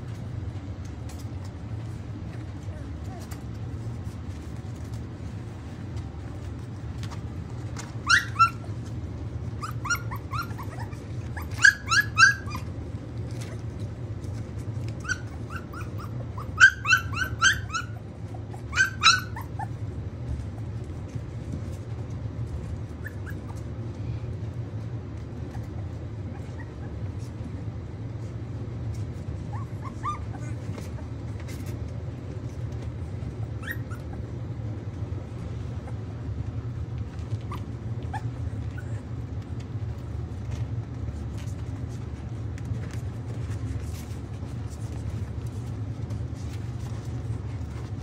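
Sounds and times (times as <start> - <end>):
steady low hum: 0.0 - 48.0
puppies yipping and whimpering: 7.7 - 13.7, 14.8 - 20.0, 22.8 - 23.8, 25.4 - 27.2, 29.3 - 31.7, 33.3 - 34.6, 37.1 - 39.4.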